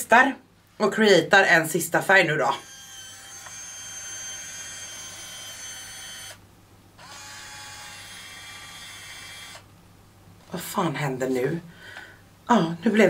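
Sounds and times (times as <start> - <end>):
mechanical whir: 2.6 - 6.4, 7.0 - 9.7.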